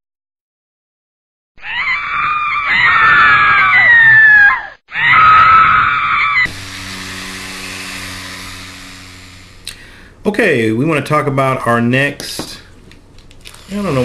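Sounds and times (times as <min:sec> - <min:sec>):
person screaming: 0:01.6 - 0:06.5
handheld fan humming: 0:06.4 - 0:10.4, 0:12.9 - 0:14.0.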